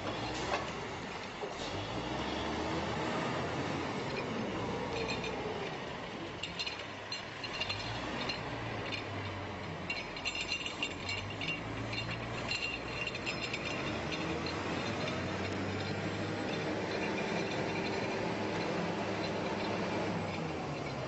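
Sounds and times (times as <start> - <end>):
metallic clinking and ratcheting: 4.9 - 21.0.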